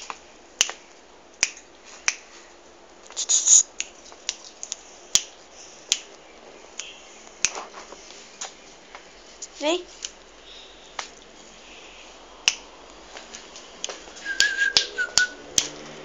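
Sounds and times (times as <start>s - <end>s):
short hissing burst: 3.1s - 3.7s.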